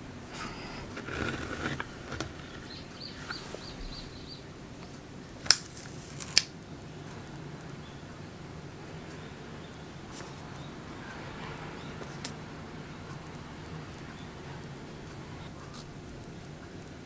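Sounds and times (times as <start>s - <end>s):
faint handling noise: 0.0s - 7.3s
faint high chirps: 2.4s - 5.0s.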